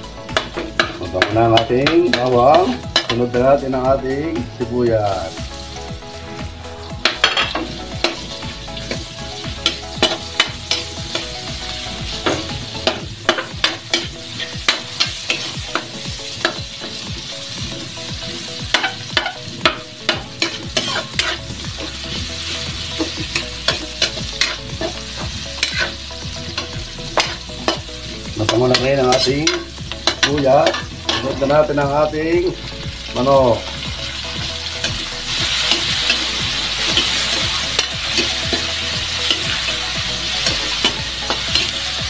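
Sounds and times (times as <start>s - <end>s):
onion sizzling in hot oil: 0.0s - 42.0s
spatula scraping a pan: 18.3s - 31.6s, 34.9s - 41.8s.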